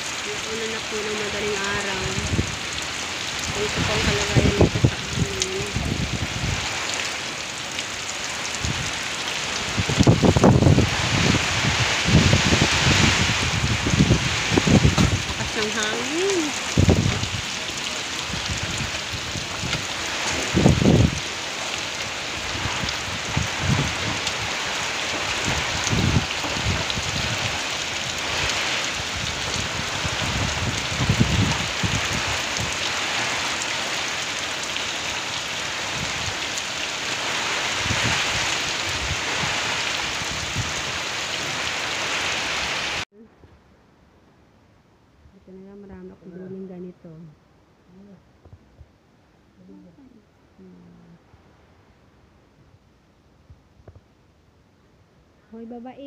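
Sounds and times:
low rumbles: 0.0s - 41.8s
heavy rain pouring: 0.0s - 43.1s.

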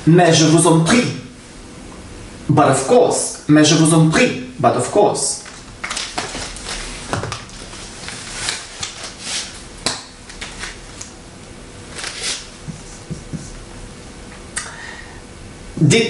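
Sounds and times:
book handling rustles: 5.4s - 11.1s, 11.9s - 12.9s.

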